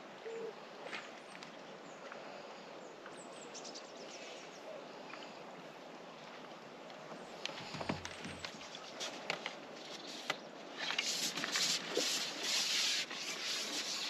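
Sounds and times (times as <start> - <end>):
low bird coo: 0.2 - 0.8.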